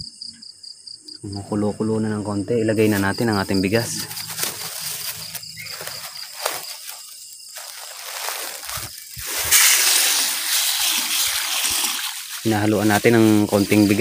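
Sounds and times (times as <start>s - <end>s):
crickets chirping: 0.0s - 14.0s
rice pouring into water: 7.8s - 14.0s.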